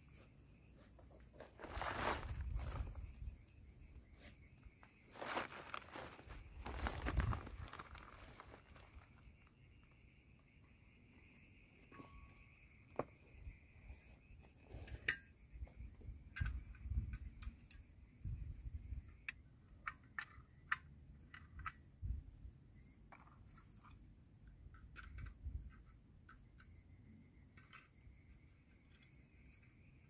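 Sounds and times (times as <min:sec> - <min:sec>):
crickets trilling: 0:00.0 - 0:30.0
small metal clicks and taps: 0:16.3 - 0:17.9, 0:19.2 - 0:22.0, 0:23.1 - 0:26.8, 0:27.5 - 0:29.8.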